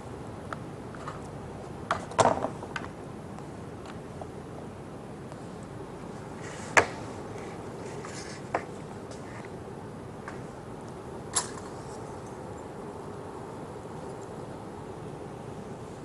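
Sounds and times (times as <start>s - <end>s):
low room hiss: 0.0s - 16.0s.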